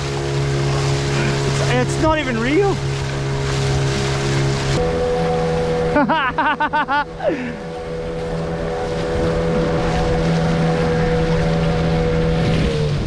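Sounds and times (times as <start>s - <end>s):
boat engine running: 0.0s - 13.0s
water rushing past hull: 0.0s - 13.0s
wind on microphone: 8.0s - 13.0s.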